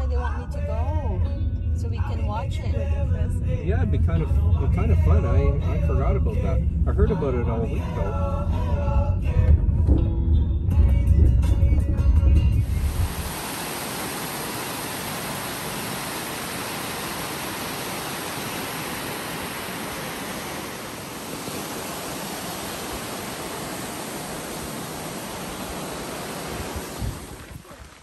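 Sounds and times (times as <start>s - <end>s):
waterfall splashing over rock: 12.6s - 28.0s.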